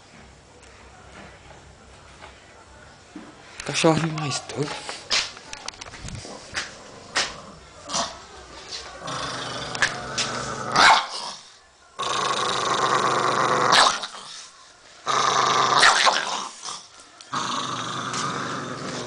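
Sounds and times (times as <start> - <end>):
dog growling and snarling: 6.2 - 8.3, 9.0 - 14.4, 15.0 - 19.0.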